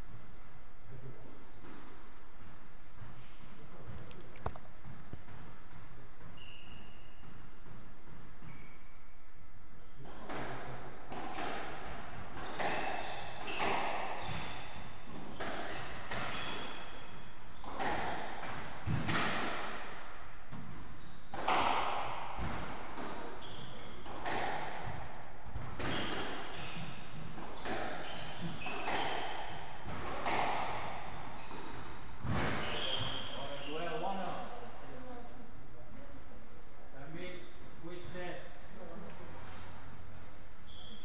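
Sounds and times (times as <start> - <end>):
racquets hitting squash ball: 1.2 - 35.1
shoes squeaking on wooden floor: 3.0 - 7.6, 8.2 - 9.0, 12.4 - 18.0, 23.2 - 24.4, 25.6 - 34.2, 40.6 - 41.0.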